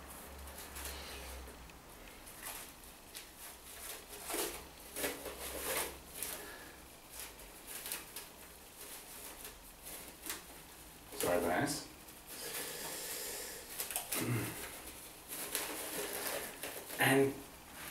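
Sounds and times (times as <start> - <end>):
cling film crinkling: 2.1 - 12.7, 13.6 - 17.2.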